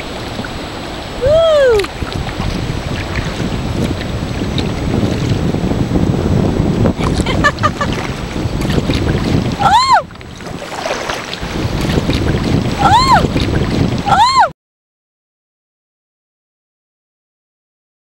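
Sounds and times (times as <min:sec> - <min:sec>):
water moving around kayak: 0:00.0 - 0:14.5
wind buffeting microphone: 0:00.0 - 0:14.5.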